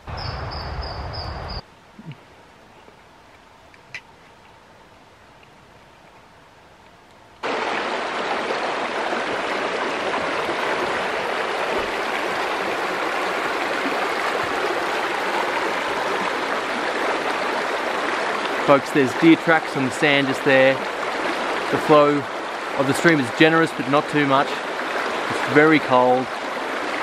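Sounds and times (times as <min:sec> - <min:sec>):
stream rushing over stones: 0:07.4 - 0:27.0.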